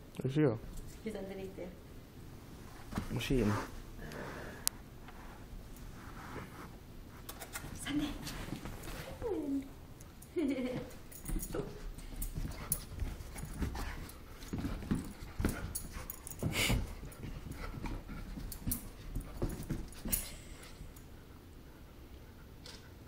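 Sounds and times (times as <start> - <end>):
dogs play-fighting: 10.0 - 23.0.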